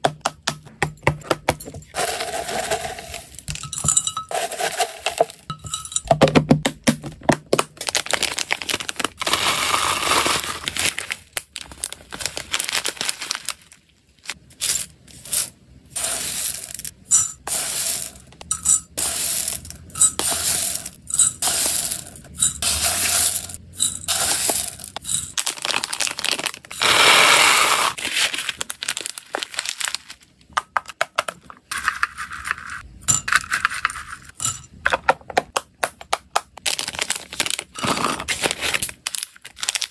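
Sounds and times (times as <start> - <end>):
seeds clinking against glass: 1.9 - 6.1, 14.6 - 27.8
dry food rattling into glass cup: 15.3 - 27.0.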